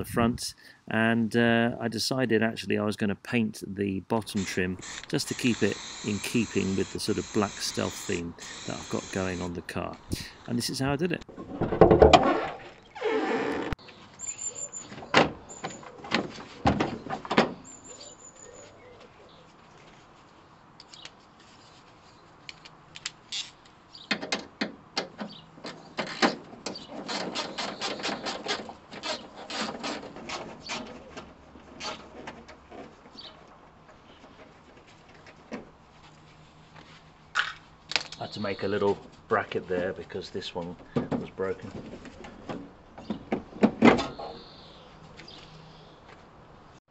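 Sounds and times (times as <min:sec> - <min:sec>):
bird chirping: 0:13.8 - 0:15.9, 0:17.6 - 0:19.5, 0:38.0 - 0:38.9, 0:44.1 - 0:46.1.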